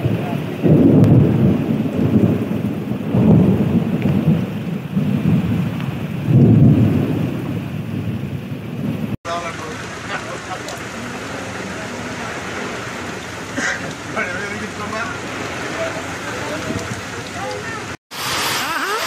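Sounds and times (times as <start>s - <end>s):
heavy rain pouring: 0.0s - 19.0s.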